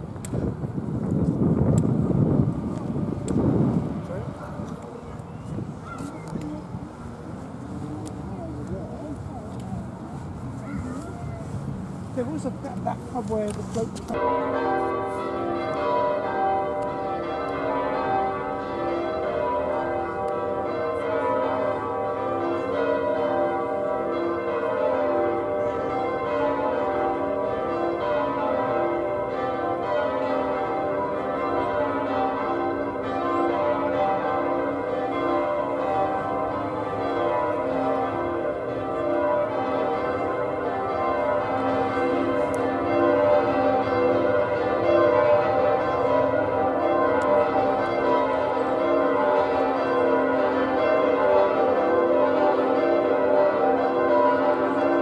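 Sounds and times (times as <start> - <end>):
church bells change ringing: 12.2 - 55.0.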